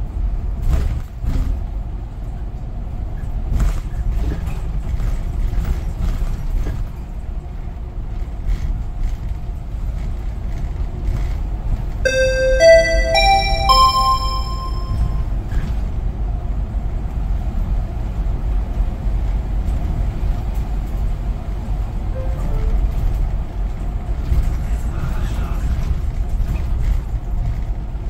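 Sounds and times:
bus engine and road rumble: 0.0 - 12.0, 16.4 - 28.0
chiming melody: 12.1 - 15.2, 22.2 - 22.9.

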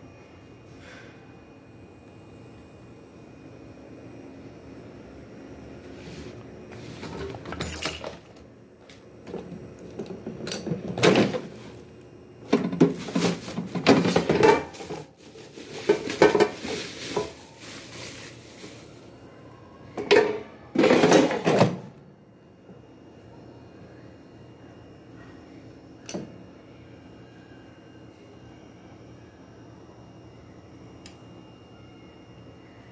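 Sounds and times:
plastic basket clattering: 10.8 - 11.9, 12.5 - 19.0
bubble wrap crinkling and rustling: 12.6 - 19.2.

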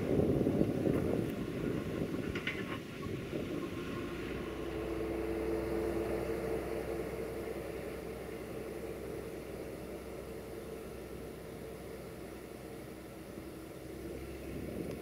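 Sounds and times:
steady droning tone: 0.0 - 15.0
truck diesel engine pulling away: 0.0 - 15.0.

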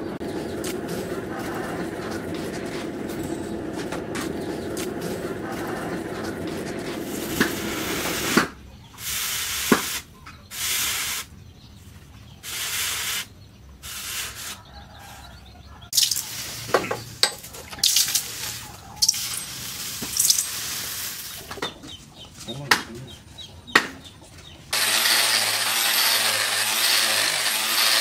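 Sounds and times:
hot metal hissing in water: 17.8 - 21.4.

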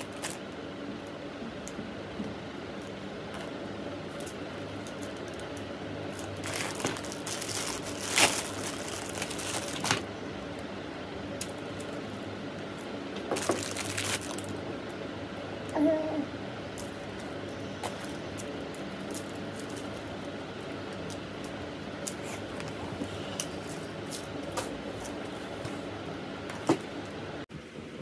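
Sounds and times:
rustling and crinkling: 0.0 - 0.5, 2.2 - 10.1, 11.4 - 14.8, 16.8 - 25.9
faint steady hum: 0.0 - 28.0.

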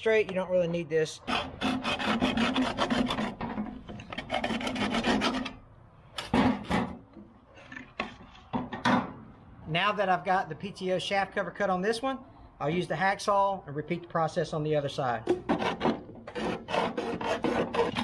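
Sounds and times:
hacksaw cutting plastic tube: 1.2 - 5.6, 6.2 - 7.0, 15.3 - 18.0.

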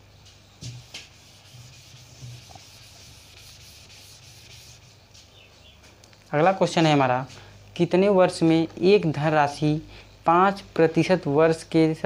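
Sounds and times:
cloth rubbing on whiteboard: 0.6 - 5.2.

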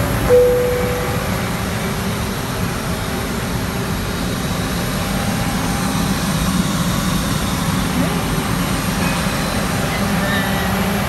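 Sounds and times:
airliner cabin hum and air rush: 0.0 - 2.6.

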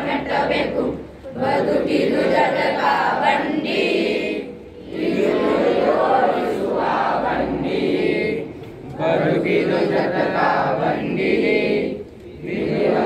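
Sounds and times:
boys singing in unison: 0.0 - 13.0.

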